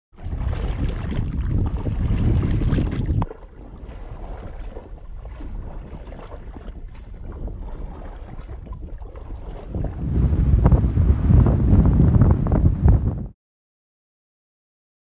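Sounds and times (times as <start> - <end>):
bare feet wading in water: 0.2 - 12.2
wind buffeting microphone: 0.2 - 13.4.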